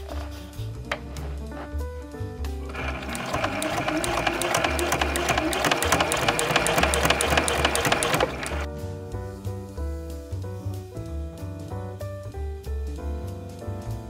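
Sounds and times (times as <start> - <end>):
sewing machine running: 2.7 - 8.7.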